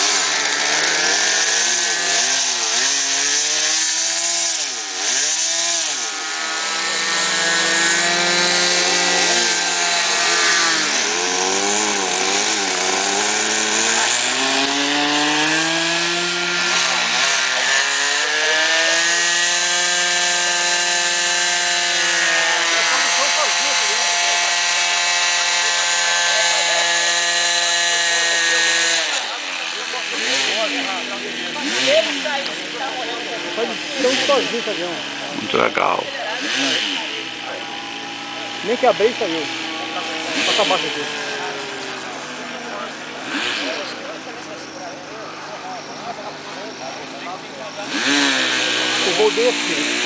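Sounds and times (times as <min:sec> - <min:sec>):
model plane engine revving: 0:00.0 - 0:50.0.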